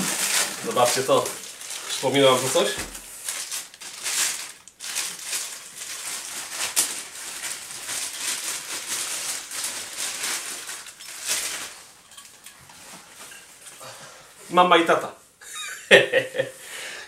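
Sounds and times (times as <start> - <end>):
sharp crackle: 0.0 - 12.6
plastic and paper rustling: 0.0 - 13.8.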